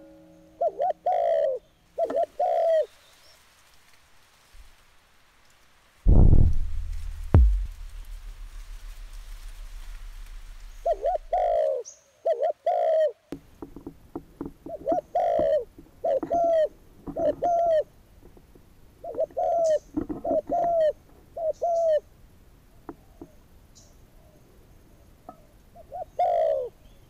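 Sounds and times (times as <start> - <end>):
dove cooing: 0.6 - 2.9, 10.7 - 13.2, 14.7 - 17.9, 19.0 - 22.0, 25.3 - 26.8
low steady hum: 6.1 - 11.4.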